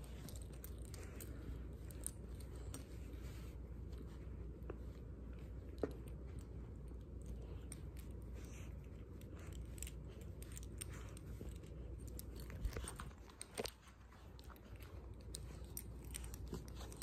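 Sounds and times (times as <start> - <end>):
puppy chewing toy: 7.0 - 17.0.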